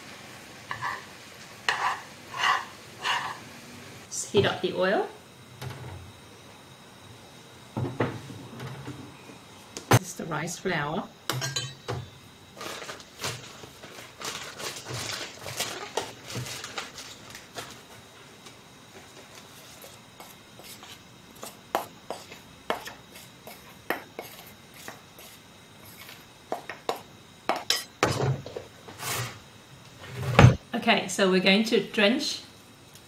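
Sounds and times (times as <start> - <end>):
bowl clinking: 11.3 - 12.0
plastic bag rustling: 12.5 - 18.1.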